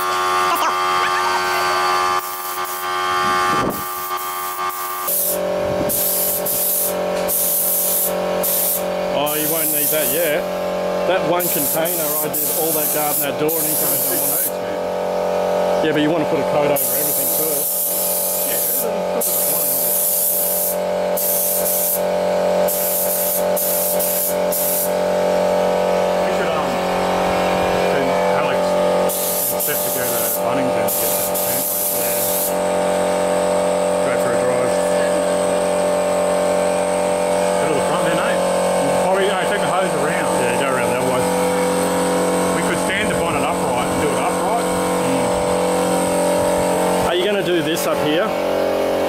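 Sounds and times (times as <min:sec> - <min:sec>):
droning hum: 0:00.0 - 0:49.0
spray gun hissing: 0:02.2 - 0:02.9, 0:03.7 - 0:10.2, 0:11.4 - 0:14.6, 0:16.8 - 0:25.1, 0:29.0 - 0:32.7.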